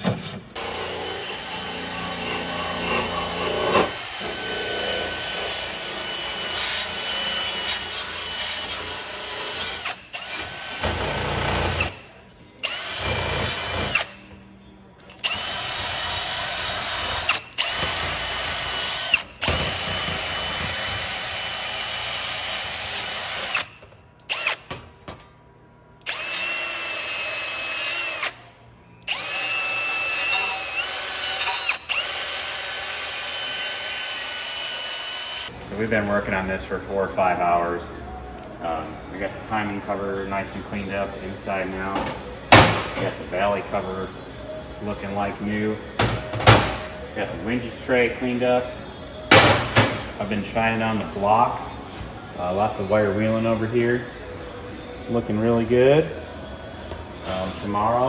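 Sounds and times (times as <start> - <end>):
drill motor whine: 26.1 - 28.4, 29.1 - 32.2.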